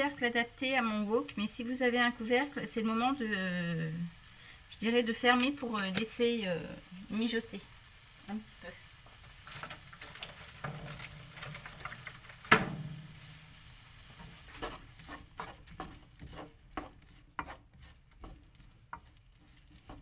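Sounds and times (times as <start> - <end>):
faint sizzle: 0.0 - 20.0
spatula scraping in a wok: 0.0 - 20.0
knock on a pan: 12.5 - 13.1.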